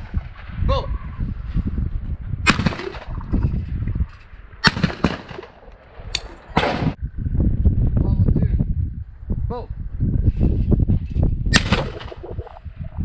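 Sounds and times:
wind rumble on microphone: 0.0s - 13.0s
shotgun shots: 2.4s - 3.1s, 4.6s - 5.6s, 6.6s - 7.0s, 11.5s - 12.3s.

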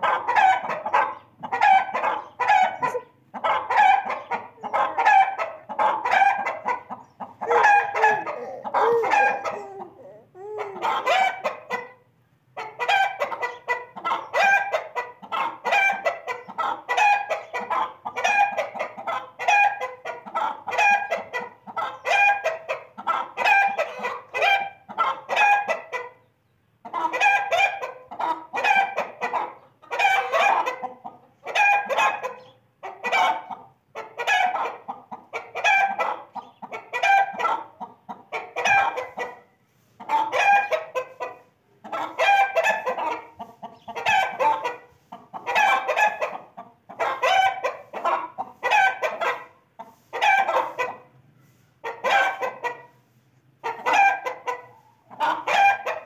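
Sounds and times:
chicken clucking: 0.0s - 56.0s.

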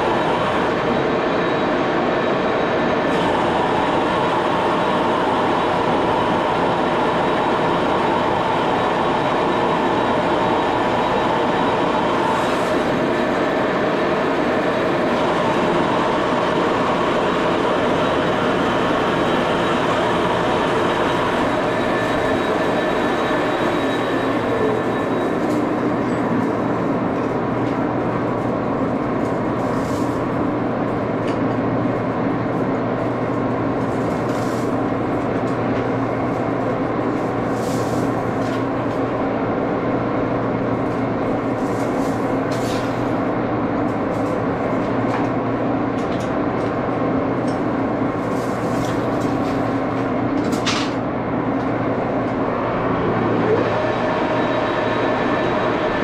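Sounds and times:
lathe running: 0.0s - 31.1s, 52.6s - 56.0s.

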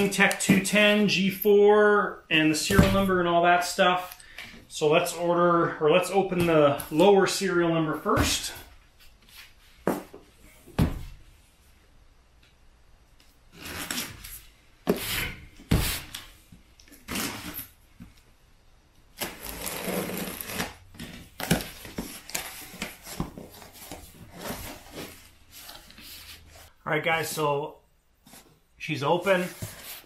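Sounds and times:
blade scraping packing tape: 19.2s - 20.8s
cardboard flaps rustling: 19.2s - 26.7s, 29.2s - 30.0s.

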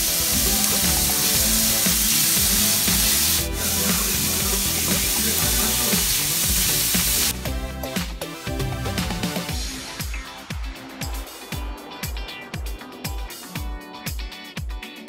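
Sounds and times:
onions sizzling in hot oil: 0.0s - 7.4s.

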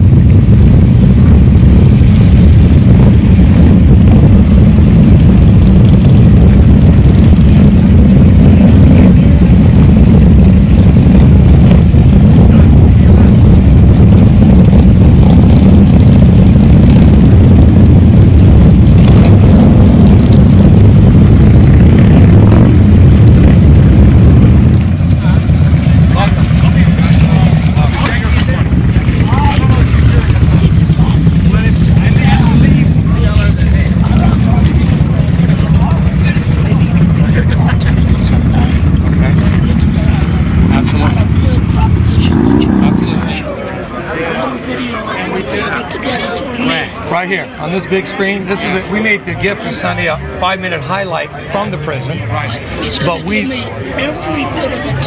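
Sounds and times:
motorcycle engines rumbling: 0.0s - 55.0s.

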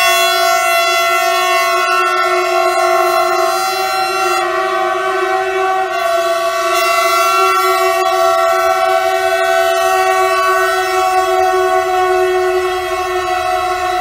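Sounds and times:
locomotive horns sounding: 0.0s - 14.0s.

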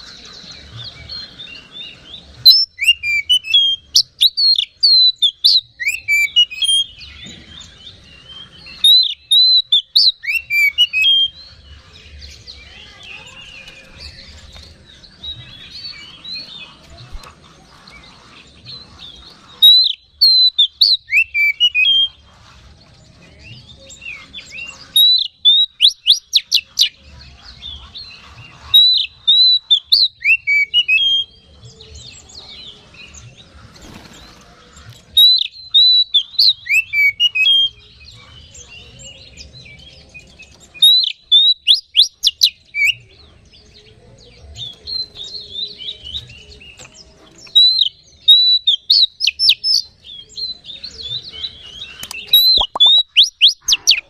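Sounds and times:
bird singing whistled notes: 0.0s - 16.6s, 19.0s - 22.2s, 23.2s - 27.0s, 28.7s - 33.2s, 35.2s - 54.0s
bird chattering softly: 50.8s - 54.0s.

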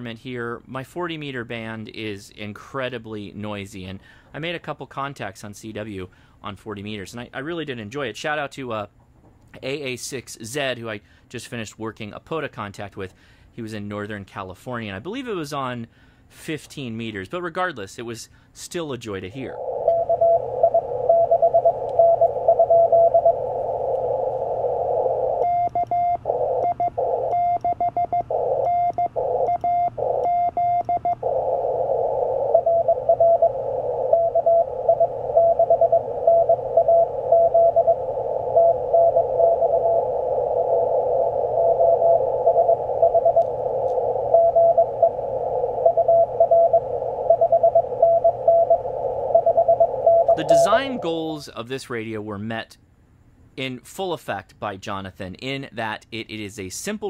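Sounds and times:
receiver hiss: 19.0s - 51.6s
radio sidetone: 19.3s - 51.4s
morse code tone: 19.6s - 51.3s.

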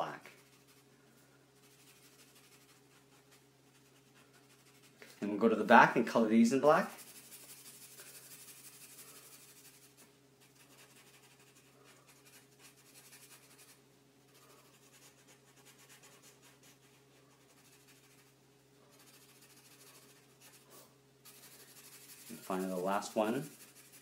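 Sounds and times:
steady low hum: 0.0s - 24.0s
marker scratching on paper: 6.9s - 13.8s, 14.7s - 18.4s, 19.0s - 24.0s.

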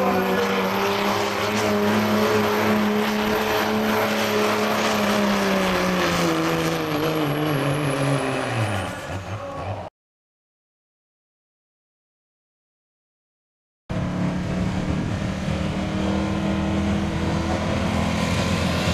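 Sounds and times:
diesel truck engine at full throttle: 0.0s - 9.9s, 13.9s - 18.9s.

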